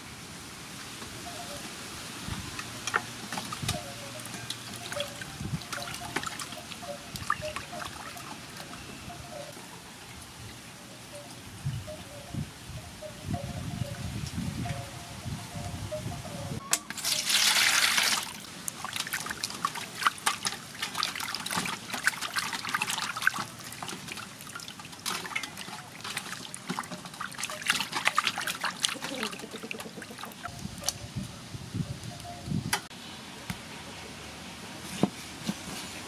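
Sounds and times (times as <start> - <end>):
rush of water: 0.0 - 9.3, 17.0 - 30.5
water splashing and dripping: 2.3 - 9.5, 17.0 - 30.9.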